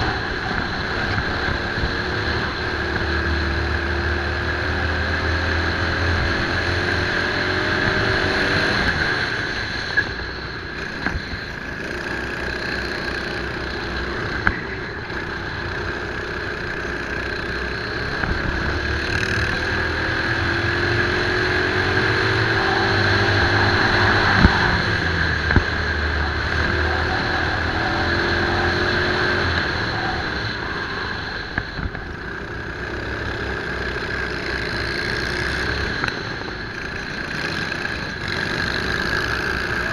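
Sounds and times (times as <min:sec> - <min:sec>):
kart engine at racing speed: 0:00.0 - 0:39.9.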